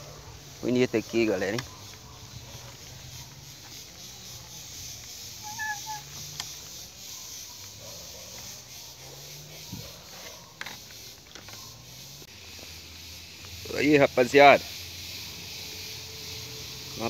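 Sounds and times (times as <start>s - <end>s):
steady hiss: 0.0s - 17.0s
bird chirp: 0.6s - 12.2s.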